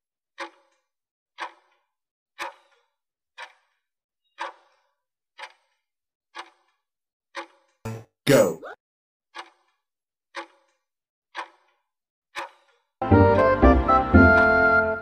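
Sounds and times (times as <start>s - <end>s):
timer ticking: 7.4s - 8.4s.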